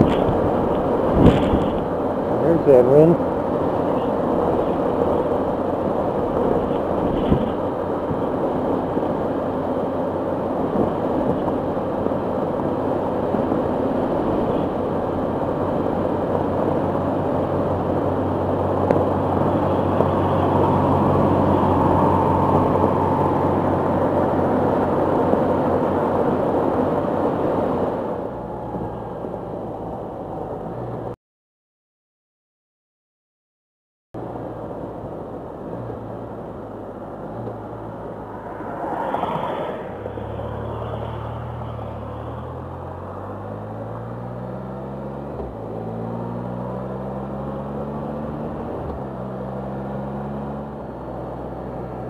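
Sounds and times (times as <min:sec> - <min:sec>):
wind on microphone: 0:00.0 - 0:02.5, 0:03.5 - 0:09.7, 0:10.6 - 0:30.8
engine droning: 0:00.0 - 0:31.2, 0:34.2 - 0:52.0
truck overtaking: 0:10.5 - 0:31.2.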